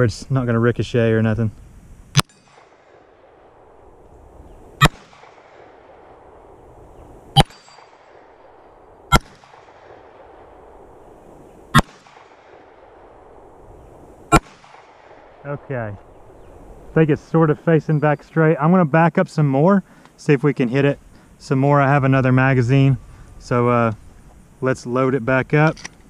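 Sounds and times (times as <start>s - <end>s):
pistol shots with echo: 4.8s - 6.5s, 7.4s - 11.0s, 11.7s - 13.3s, 14.3s - 15.4s.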